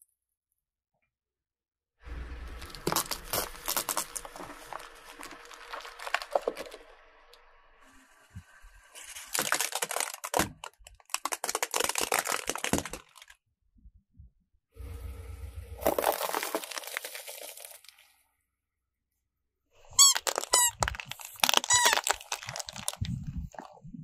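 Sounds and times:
tyre crushing objects crackling: 2.6 - 6.8, 15.8 - 17.8, 20.2 - 23.1.

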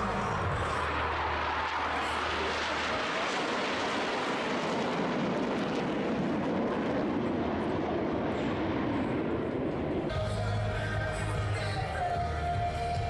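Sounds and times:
jets flying past: 0.0 - 10.1.

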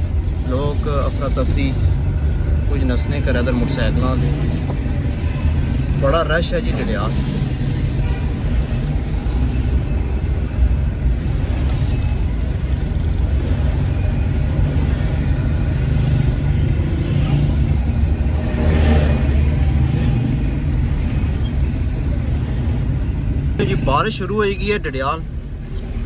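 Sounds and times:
street traffic: 0.0 - 26.0
vehicle engine and road rumble: 0.0 - 26.0.

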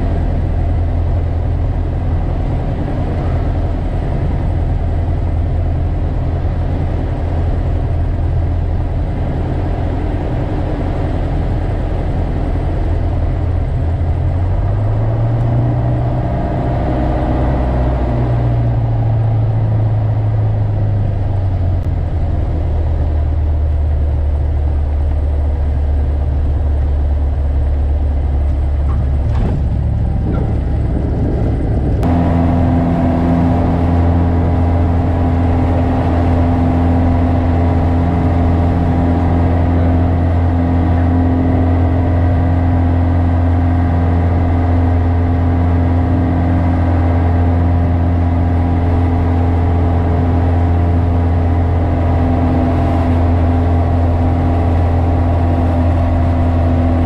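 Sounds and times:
light aircraft engine drone: 0.0 - 57.0.

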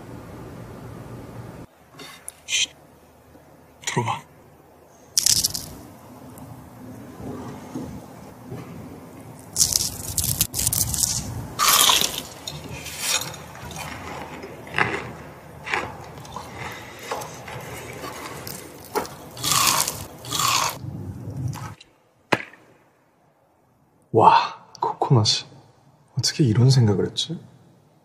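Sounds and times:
crunching bites into fried chicken: 5.2 - 5.8, 9.4 - 14.0, 18.5 - 20.8.

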